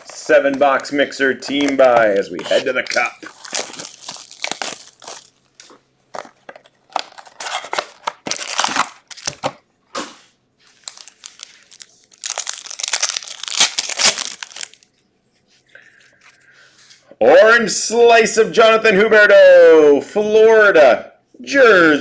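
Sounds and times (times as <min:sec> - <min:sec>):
foil wrappers crinkling: 0:00.0 - 0:09.6, 0:10.6 - 0:14.9
wrapper tearing open: 0:00.0 - 0:09.6, 0:10.7 - 0:14.9.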